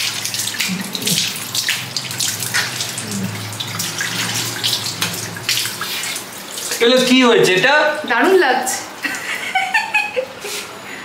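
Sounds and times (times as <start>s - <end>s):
water splashing: 0.0s - 8.1s.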